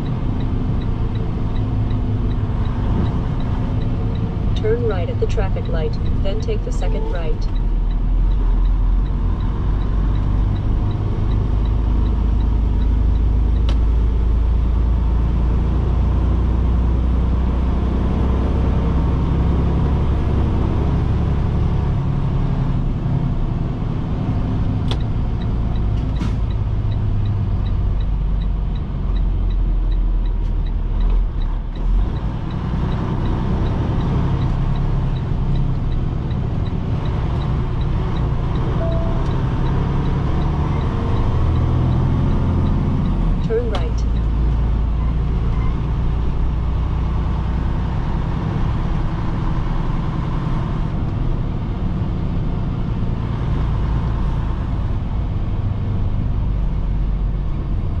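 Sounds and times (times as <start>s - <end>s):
truck engine and road rumble: 0.0s - 58.0s.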